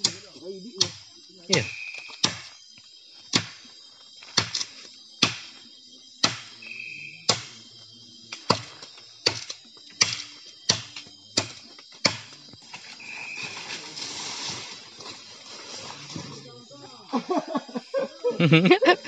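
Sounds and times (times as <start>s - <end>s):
blade chopping wood: 4.3s - 5.5s, 6.2s - 6.5s, 7.3s - 7.6s, 8.4s - 12.4s.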